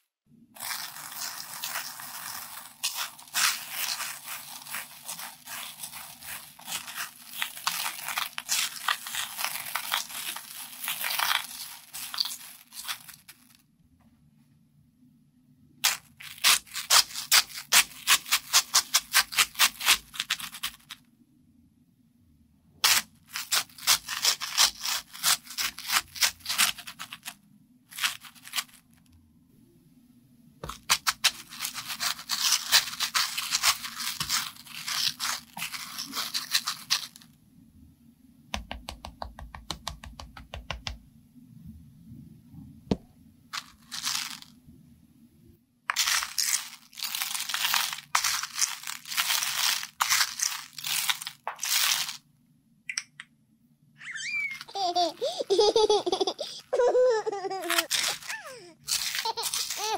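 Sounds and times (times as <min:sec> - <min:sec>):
candies rattling in plastic tub: 0:00.6 - 0:13.6, 0:23.3 - 0:28.9, 0:30.6 - 0:37.2, 0:43.6 - 0:44.5, 0:45.9 - 0:52.2, 0:57.6 - 0:59.9.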